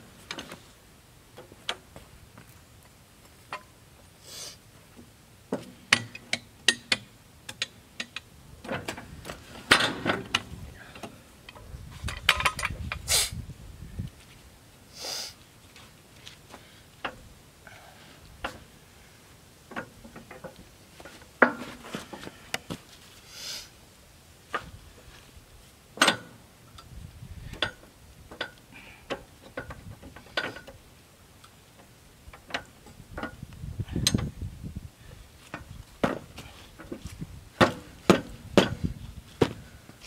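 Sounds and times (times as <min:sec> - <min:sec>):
short hissing sweeps: 0:04.2 - 0:04.6, 0:13.0 - 0:13.4, 0:14.9 - 0:15.4, 0:23.2 - 0:23.8
wooden boards knocking and clattering: 0:35.6 - 0:37.0, 0:37.6 - 0:39.6.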